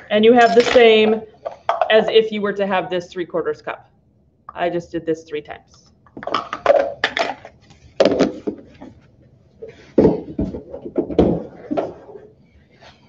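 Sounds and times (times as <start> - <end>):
plastic cups clattering: 6.1 - 8.8
knocks and rustles: 9.7 - 12.3.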